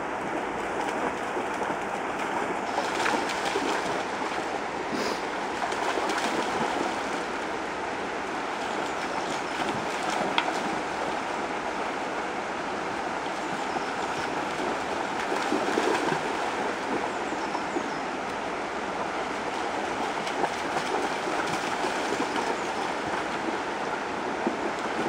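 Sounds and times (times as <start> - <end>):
river water rushing over stones: 0.0 - 25.0
dog splashing through water: 0.7 - 7.3, 13.5 - 18.0, 19.4 - 23.5.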